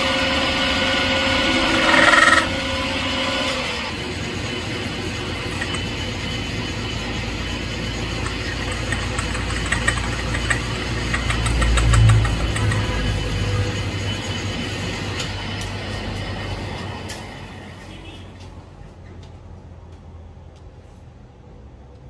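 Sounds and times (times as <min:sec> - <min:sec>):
metal lathe motor whine: 0:00.0 - 0:17.0.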